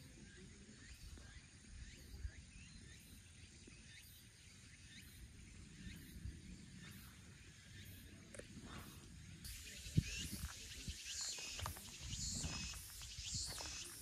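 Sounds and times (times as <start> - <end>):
wind rumble on microphone: 8.6 - 14.0.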